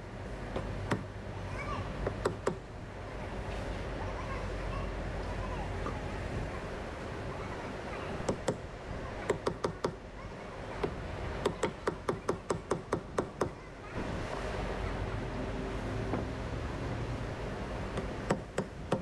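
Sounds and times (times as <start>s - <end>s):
low background rumble: 0.0s - 19.0s
hammer tapping on metal: 9.3s - 10.0s, 10.8s - 13.6s.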